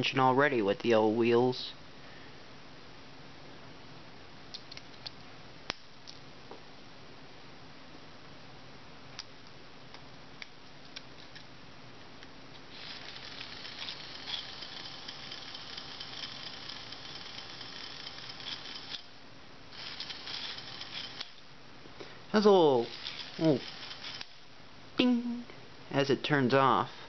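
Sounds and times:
toy motor whirring: 0:12.7 - 0:21.4, 0:22.4 - 0:24.5.

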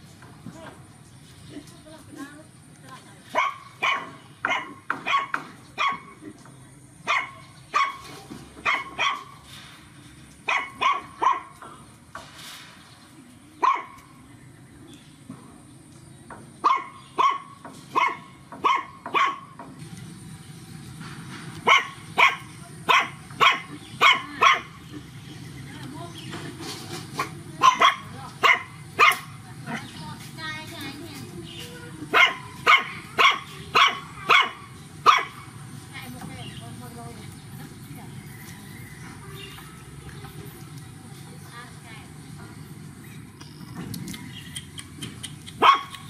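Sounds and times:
puppies barking and yapping: 0:03.3 - 0:06.2, 0:07.0 - 0:09.6, 0:10.4 - 0:11.8, 0:13.6 - 0:14.2, 0:16.6 - 0:19.7, 0:21.5 - 0:25.4, 0:26.1 - 0:30.4, 0:31.2 - 0:35.7, 0:42.7 - 0:46.0.

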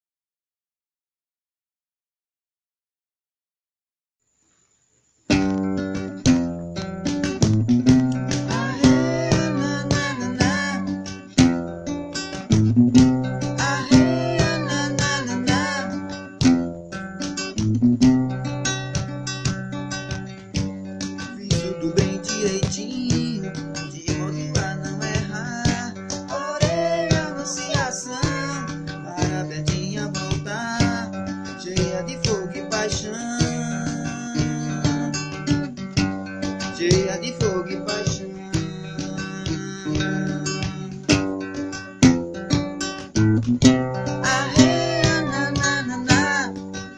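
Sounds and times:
acoustic guitar playing: 0:05.3 - 0:46.9
plucked string notes: 0:05.3 - 0:46.9
steady percussive beat: 0:06.0 - 0:11.6.

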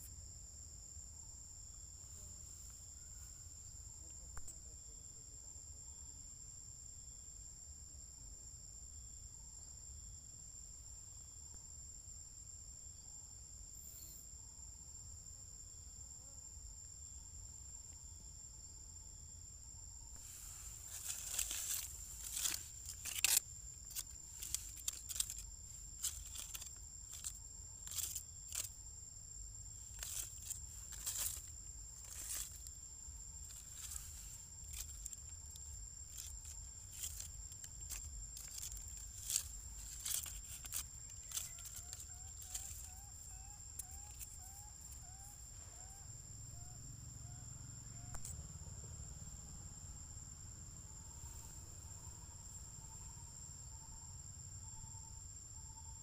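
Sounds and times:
high insect trill: 0:00.0 - 0:56.0
sharp crackles and clicks: 0:20.9 - 0:25.4.

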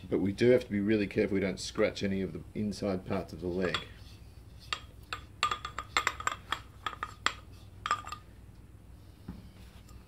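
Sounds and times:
screwdriver clinking inside metal tube: 0:04.7 - 0:08.2.

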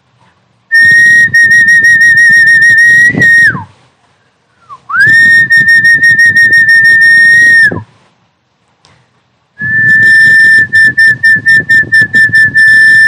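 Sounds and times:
high fluttering whistle: 0:00.7 - 0:03.7, 0:04.7 - 0:07.8, 0:09.6 - 0:13.0.

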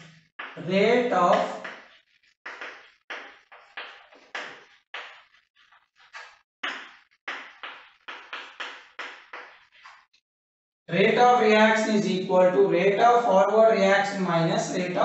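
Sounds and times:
chalk writing on chalkboard: 0:01.3 - 0:10.0.

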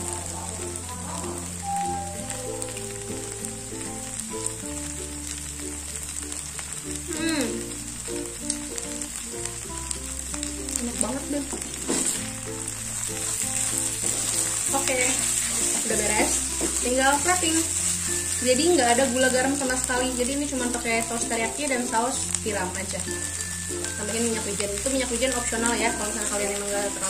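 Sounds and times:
background music: 0:00.0 - 0:27.0
food sizzling in frying pan: 0:00.0 - 0:27.0
spatula stirring in pan: 0:11.6 - 0:20.0.

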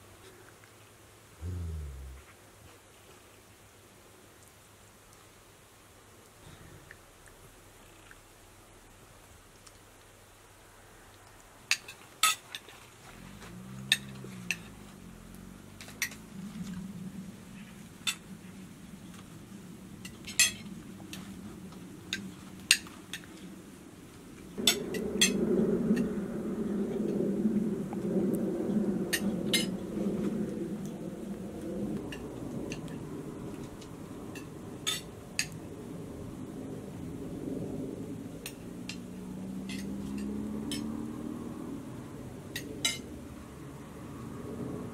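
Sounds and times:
faint hum: 0:01.3 - 0:02.5
low background rumble: 0:01.3 - 0:02.6, 0:12.9 - 0:22.4
steady low noise: 0:01.3 - 0:02.6, 0:24.6 - 0:38.7.

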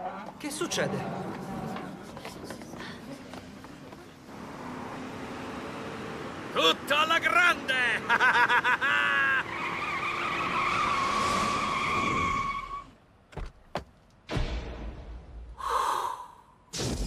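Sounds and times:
man laughing: 0:07.9 - 0:09.5
car tyres squealing: 0:08.8 - 0:13.0.

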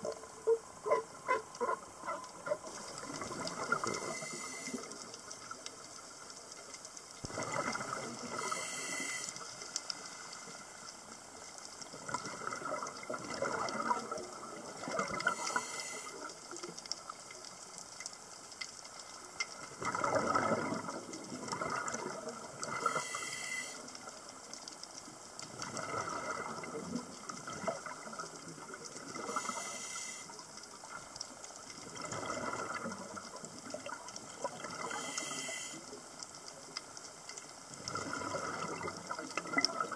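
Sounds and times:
exhaled bubbles gurgling: 0:00.0 - 0:06.0, 0:07.2 - 0:09.4, 0:11.8 - 0:16.6, 0:19.6 - 0:24.2, 0:25.4 - 0:36.9, 0:37.6 - 0:39.9
regulator hissing inhale: 0:03.9 - 0:05.0, 0:08.3 - 0:09.6, 0:15.2 - 0:16.2, 0:22.8 - 0:23.9, 0:29.2 - 0:30.4, 0:34.8 - 0:36.0.

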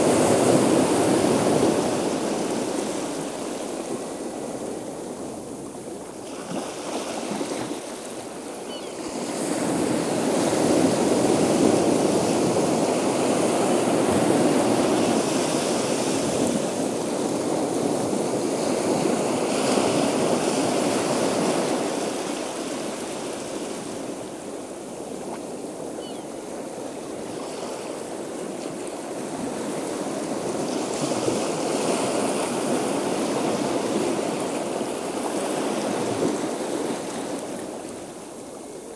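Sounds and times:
breaking ocean waves: 0:00.0 - 0:38.9.

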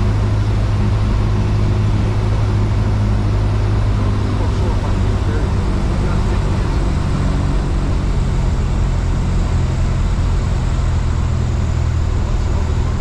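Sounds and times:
light aircraft engine drone: 0:00.0 - 0:13.0.

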